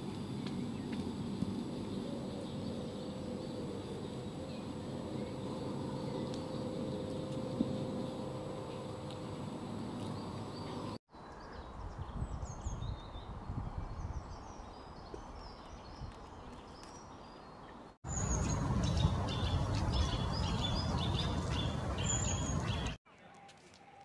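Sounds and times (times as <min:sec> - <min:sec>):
small birds chirping: 0:01.7 - 0:24.0
steady low rumble: 0:18.1 - 0:23.0.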